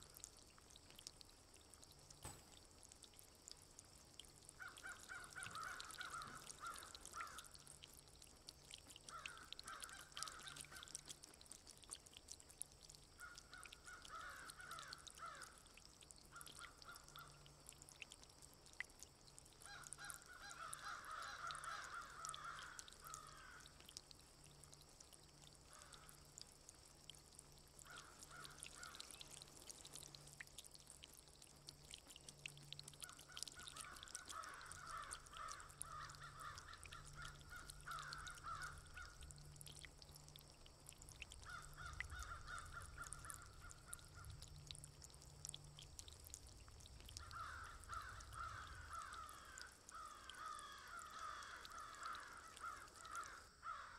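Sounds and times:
rain pattering and dripping: 0:00.0 - 0:53.9.

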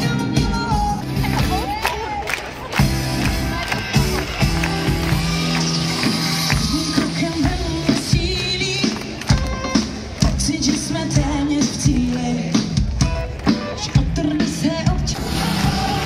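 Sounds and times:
live pop music over speakers: 0:00.0 - 0:16.0
person singing: 0:04.8 - 0:16.0.

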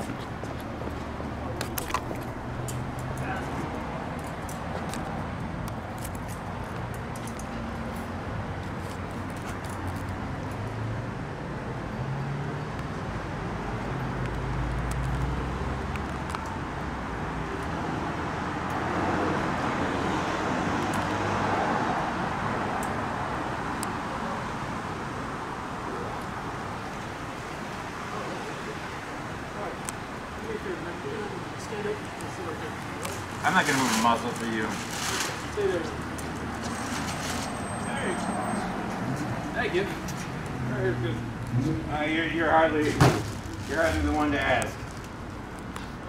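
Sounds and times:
road traffic: 0:00.0 - 0:46.0
vehicle passing: 0:13.4 - 0:23.7.

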